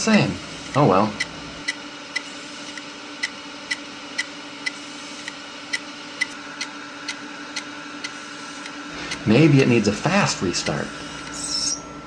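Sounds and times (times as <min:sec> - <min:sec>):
hard drive spinning hum: 0:00.0 - 0:12.0
sharp hard drive clicks: 0:00.7 - 0:09.7.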